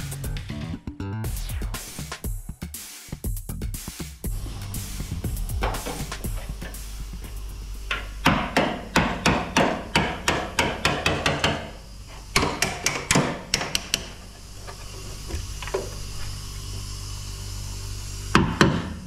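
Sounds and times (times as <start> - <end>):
background music with drum beat: 0.0 - 9.3
hammer striking sheet metal: 7.9 - 11.7.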